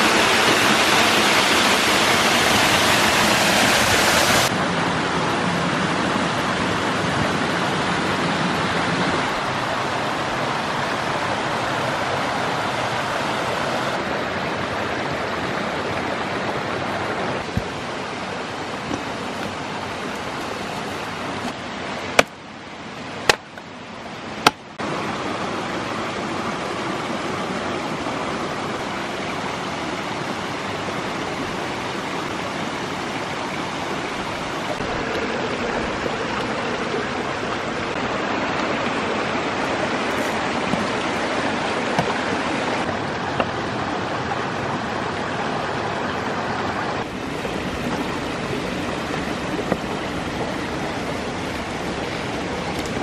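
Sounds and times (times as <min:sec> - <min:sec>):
stream rushing over rocks: 0:00.0 - 0:53.0
firewood chopping strikes: 0:22.1 - 0:22.4, 0:23.2 - 0:23.7, 0:24.4 - 0:24.6, 0:41.9 - 0:42.2.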